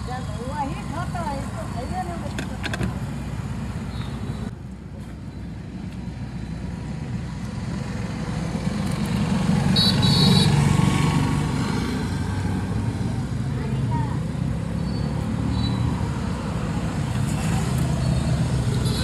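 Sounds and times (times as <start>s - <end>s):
street traffic rumbling: 0.0s - 19.0s
motor vehicle passing close: 7.6s - 13.4s.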